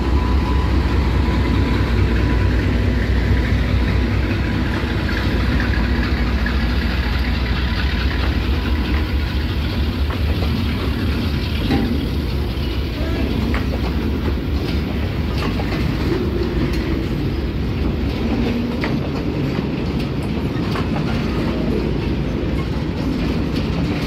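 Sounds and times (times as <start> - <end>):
diesel locomotive engine rumbling: 0.0 - 24.0
train wheels on rails: 0.0 - 24.0.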